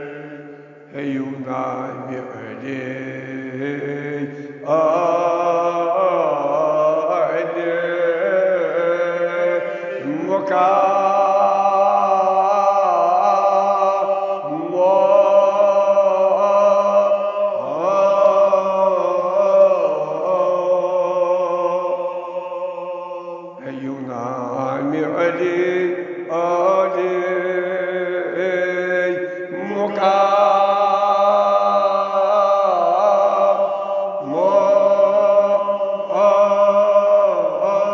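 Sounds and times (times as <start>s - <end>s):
man chanting an elegy: 28.4s - 33.2s.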